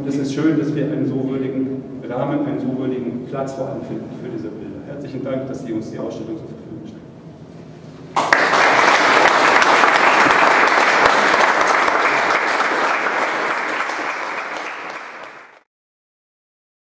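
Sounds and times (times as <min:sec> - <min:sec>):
audience applauding: 0:08.2 - 0:15.6.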